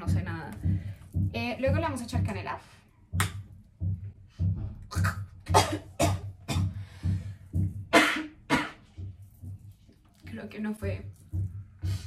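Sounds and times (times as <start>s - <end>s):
background music with beat: 3.1s - 12.0s
woman coughing: 4.9s - 6.8s, 7.9s - 8.9s.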